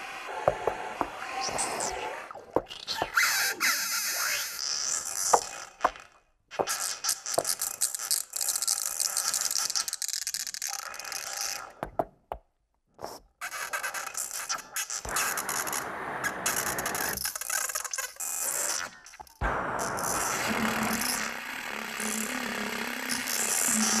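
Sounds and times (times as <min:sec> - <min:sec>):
glitchy electronic noise music: 0:19.5 - 0:24.0.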